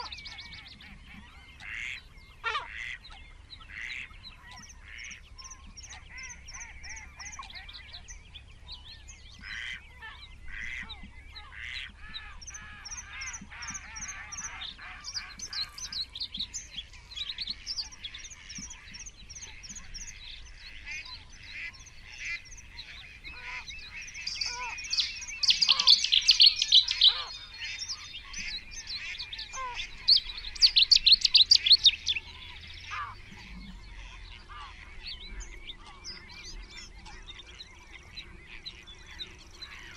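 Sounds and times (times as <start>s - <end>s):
waterfowl calling: 0.0s - 0.4s, 1.1s - 5.2s, 9.4s - 35.0s
small birds singing and chirping: 0.0s - 39.9s
loud bursts of rapid birdsong: 11.5s - 34.5s.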